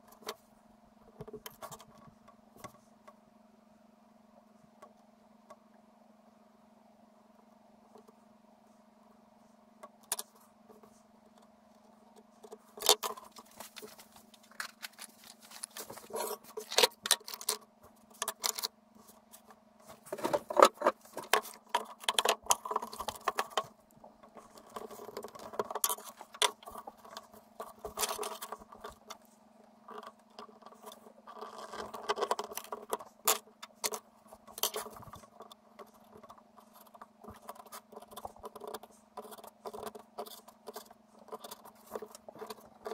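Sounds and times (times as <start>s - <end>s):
steady low hum: 0.0s - 42.9s
leather scraping and rustling: 13.2s - 16.8s.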